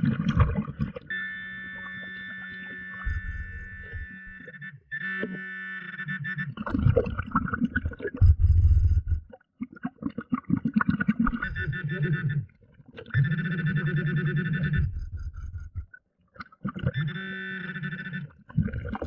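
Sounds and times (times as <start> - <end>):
low bubbling rumbles: 0.0 - 1.1, 3.0 - 4.3, 6.7 - 11.7, 14.6 - 16.0
pulsing buzzing alert tone: 1.1 - 6.6, 8.2 - 9.3, 11.3 - 12.4, 13.2 - 15.9.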